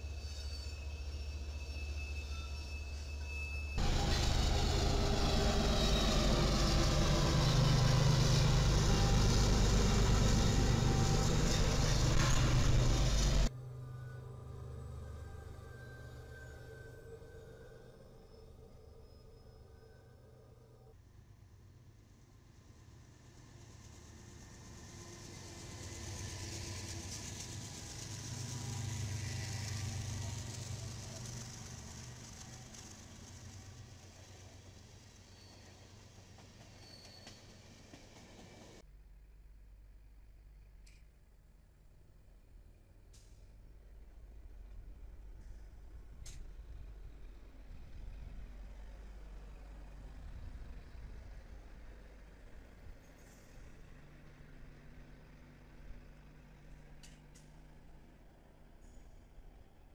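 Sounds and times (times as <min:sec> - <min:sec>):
steel wheels hissing on rail: 0:00.0 - 0:13.5, 0:22.8 - 0:38.8
diesel locomotive engine drone: 0:00.0 - 0:59.9
rumble of rolling freight cars: 0:00.0 - 0:59.9
locomotive engine rumble: 0:03.8 - 0:16.5, 0:23.9 - 0:40.7.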